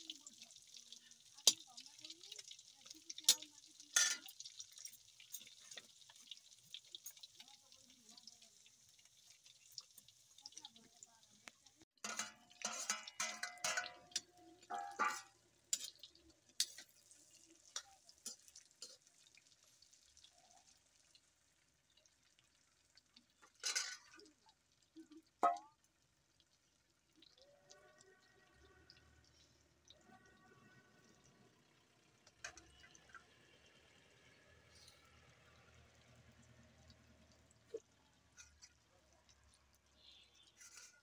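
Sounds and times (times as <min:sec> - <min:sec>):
fat sizzling: 0:00.0 - 0:21.4
metal ladle scraping a wok: 0:12.0 - 0:17.0, 0:40.0 - 0:41.0.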